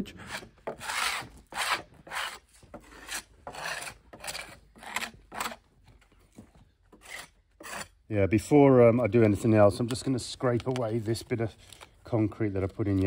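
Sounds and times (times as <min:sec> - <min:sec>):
hand tool scraping wood: 0:00.0 - 0:05.7, 0:06.9 - 0:08.1.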